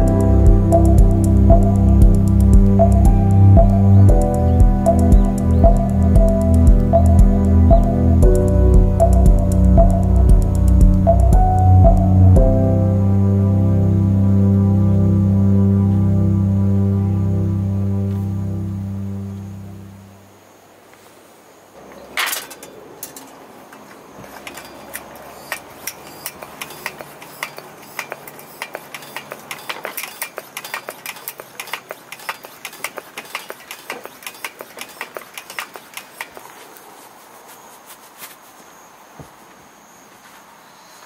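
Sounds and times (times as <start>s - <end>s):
metal clicks and clinks: 22.1s - 36.4s.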